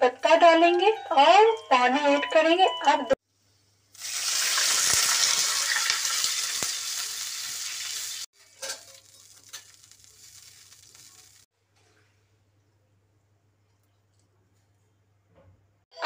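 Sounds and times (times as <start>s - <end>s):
seeds sizzling in hot oil: 3.9s - 11.5s.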